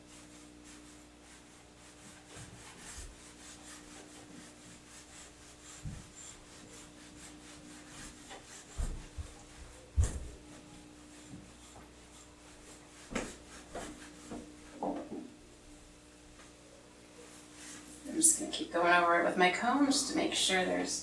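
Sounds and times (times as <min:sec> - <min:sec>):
metal rake brushing dog fur: 0:00.2 - 0:14.4.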